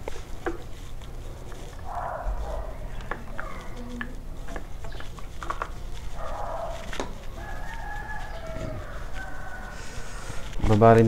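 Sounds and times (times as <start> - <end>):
rooster crowing: 6.1 - 10.6.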